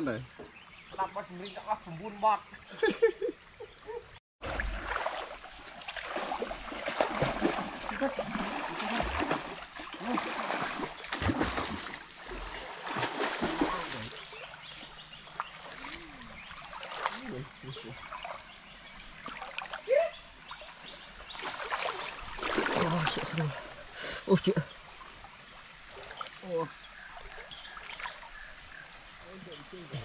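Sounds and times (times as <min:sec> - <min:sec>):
water splashing from swimming: 0:04.4 - 0:14.8, 0:15.4 - 0:23.9
stream running water: 0:04.4 - 0:30.0.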